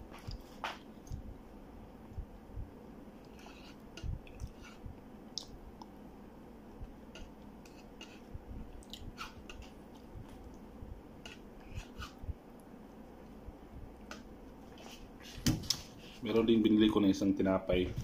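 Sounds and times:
eating mouth sounds: 7.2s - 9.8s.

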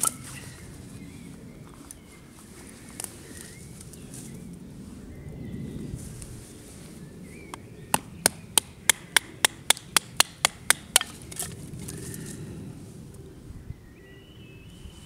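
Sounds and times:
knife chopping into wood: 7.9s - 11.5s.

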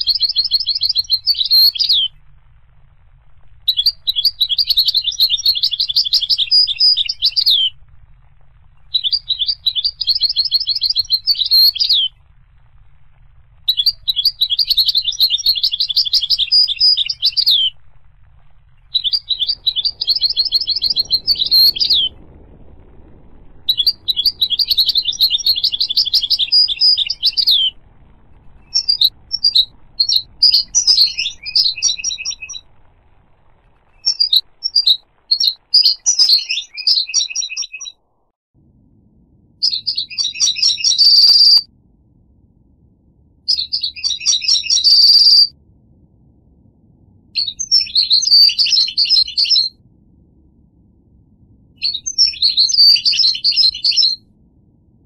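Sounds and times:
goldfinch twittering song: 0.0s - 2.1s, 3.7s - 7.7s, 8.9s - 12.2s, 13.7s - 17.7s, 18.9s - 22.2s, 23.6s - 27.8s, 28.6s - 32.6s, 33.9s - 38.0s, 39.6s - 41.6s, 43.5s - 45.5s, 47.4s - 49.7s, 51.8s - 54.2s.

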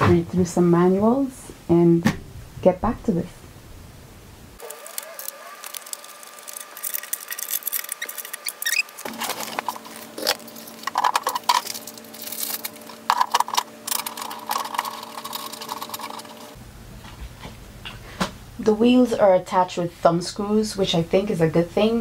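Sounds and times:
plastic parts clicking and rattling: 4.6s - 16.6s
scraping: 4.6s - 17.4s.

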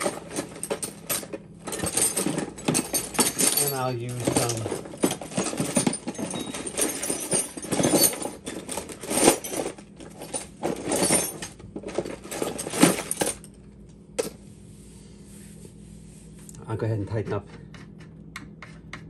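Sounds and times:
metal hand tools clinking: 0.0s - 9.7s.

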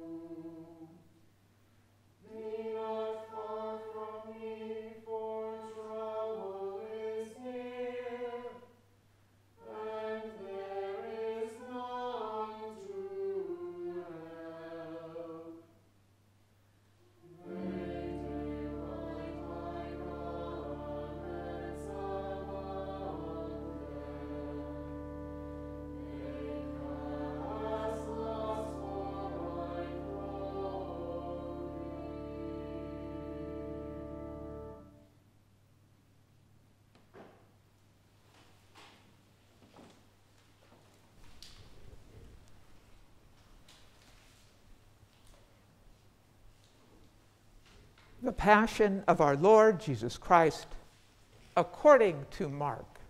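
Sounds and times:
church choir singing: 0.0s - 1.0s, 2.2s - 8.8s, 9.6s - 15.8s, 17.2s - 35.1s
organ chords: 17.3s - 35.1s.

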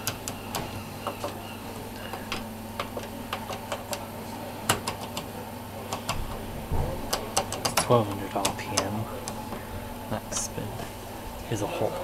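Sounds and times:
selector knobs clicking: 2.1s - 4.1s, 4.7s - 6.4s, 7.1s - 9.4s.

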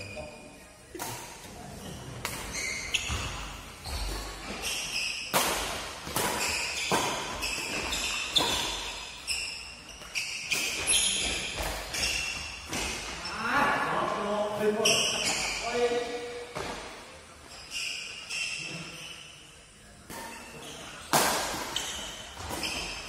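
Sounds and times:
shoes squeaking on court: 1.6s - 13.5s, 14.6s - 19.4s, 20.1s - 23.0s
rackets striking shuttlecock: 5.0s - 8.8s.

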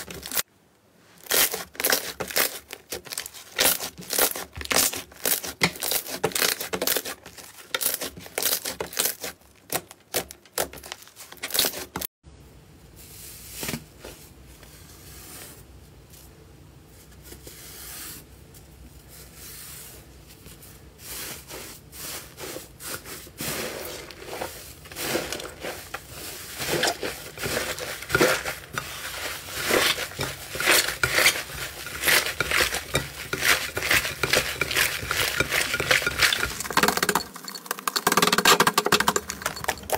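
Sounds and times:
slime squishing: 1.2s - 12.0s, 21.1s - 39.9s.

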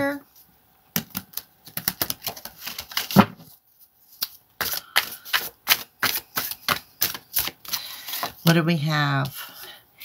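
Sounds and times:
cards being shuffled: 1.0s - 8.6s.

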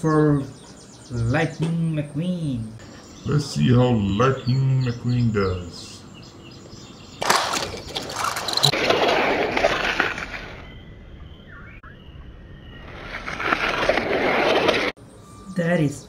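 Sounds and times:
toy car wheels rolling: 7.2s - 10.5s.

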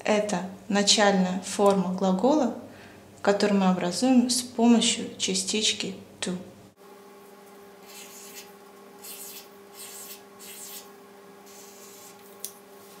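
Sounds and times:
highlighter rubbing on paper: 7.8s - 12.2s.

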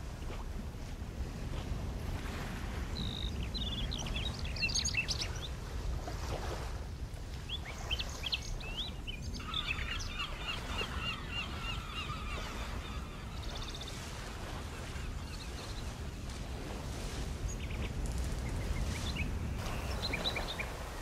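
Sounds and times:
birds chirping: 3.0s - 5.5s, 7.4s - 16.2s, 17.4s - 21.0s.

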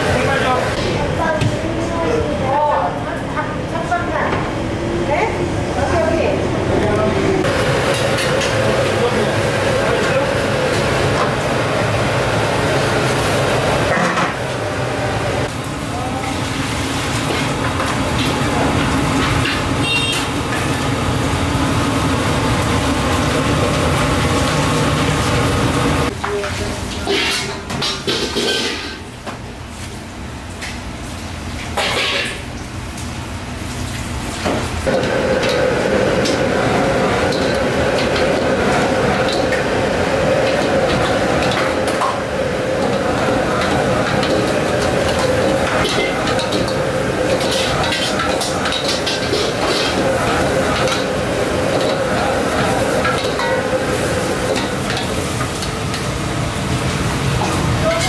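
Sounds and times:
gas burner roaring: 0.0s - 58.0s
kitchen range and ventilation rumbling: 0.0s - 58.0s
metal ladle scraping wok: 27.0s - 29.0s, 43.6s - 51.0s.

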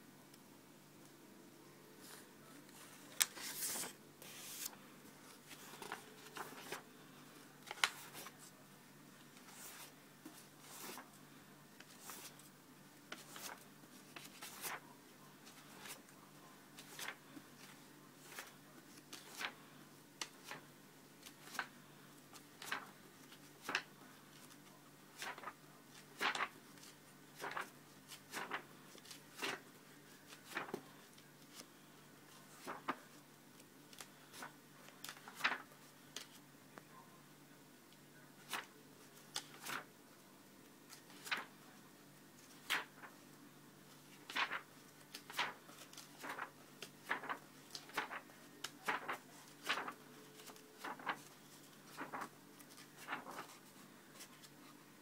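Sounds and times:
book pages turning: 2.0s - 6.8s, 7.6s - 8.6s, 9.4s - 11.1s, 11.8s - 12.5s, 13.1s - 14.8s, 15.4s - 16.0s, 16.8s - 19.6s, 20.2s - 21.8s, 22.4s - 29.7s, 30.3s - 33.0s, 33.6s - 36.4s, 38.4s - 39.9s, 40.9s - 41.5s, 42.4s - 43.2s, 43.9s - 54.7s.

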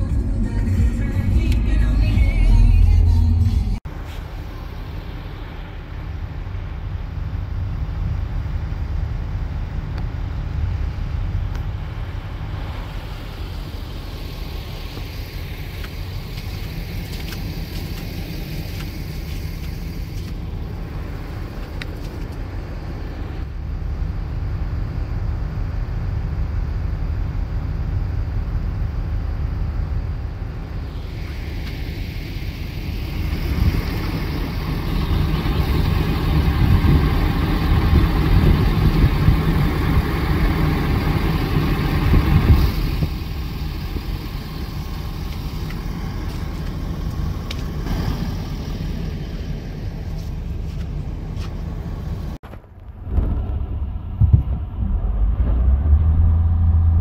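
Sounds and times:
engine and tyre rumble: 0.0s - 57.0s
tyres hissing on wet road: 11.9s - 21.6s.

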